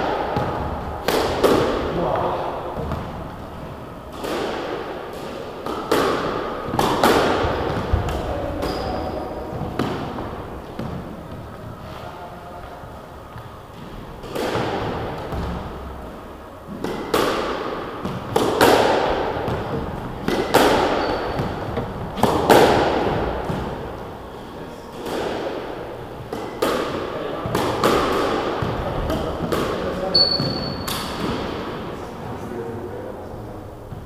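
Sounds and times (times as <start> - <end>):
squash ball cracking off rackets and walls: 0.0 - 11.6, 13.4 - 15.9, 16.7 - 24.1, 26.2 - 31.8.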